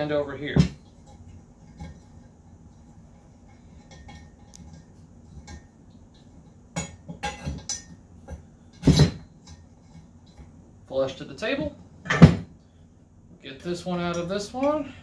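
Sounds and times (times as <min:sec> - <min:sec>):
steel bars clinking and knocking: 0:00.5 - 0:10.6.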